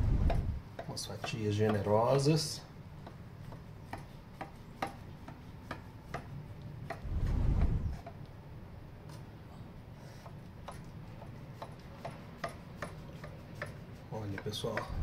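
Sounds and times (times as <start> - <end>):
low dull rumble: 0.0 - 0.6, 7.0 - 8.0.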